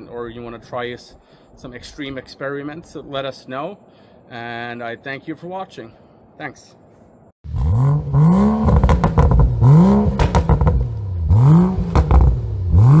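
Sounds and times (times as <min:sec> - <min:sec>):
car engine revving: 0:07.5 - 0:13.0
exhaust crackles: 0:07.5 - 0:13.0.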